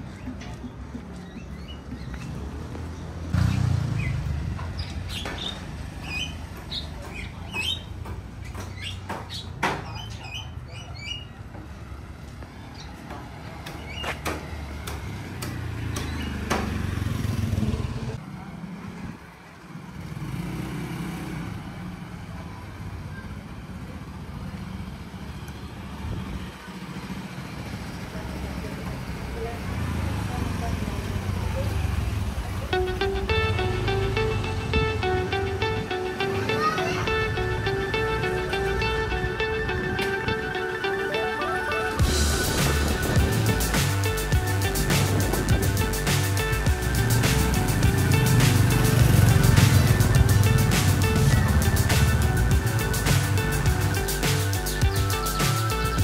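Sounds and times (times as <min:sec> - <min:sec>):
motor scooters passing: 0:00.0 - 0:08.5, 0:11.4 - 0:56.0
bird chirps: 0:03.0 - 0:11.4, 0:49.6 - 0:56.0.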